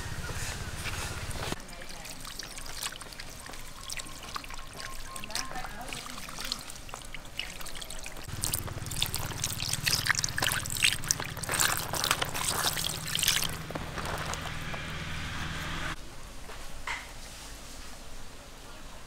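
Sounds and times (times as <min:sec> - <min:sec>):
water splashing and trickling: 0:00.8 - 0:15.0
hands rubbing fish: 0:00.9 - 0:14.6.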